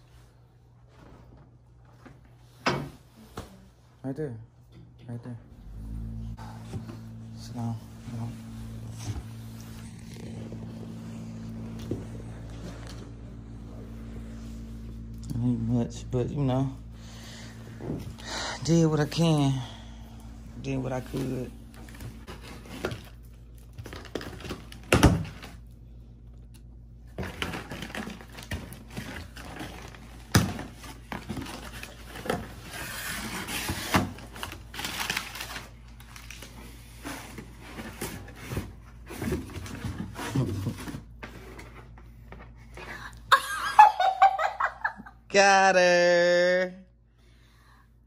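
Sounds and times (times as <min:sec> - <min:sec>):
packing paper crinkling and tearing: 0:21.2 - 0:25.6, 0:27.2 - 0:38.6.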